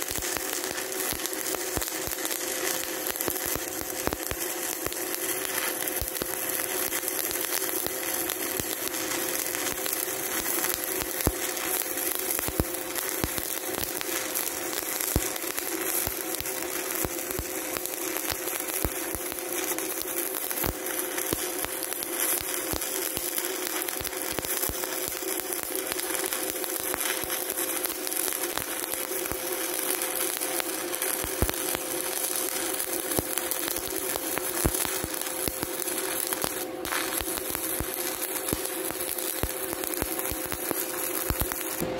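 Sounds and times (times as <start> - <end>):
steady hum: 0.0 - 41.9
welding arc crackling and sizzling: 0.0 - 41.9.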